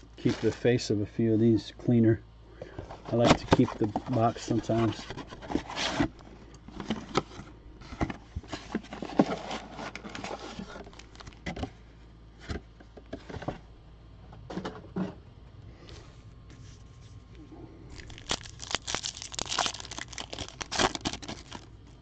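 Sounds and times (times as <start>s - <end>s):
cardboard rustling and scraping: 2.8s - 11.8s, 17.9s - 22.0s.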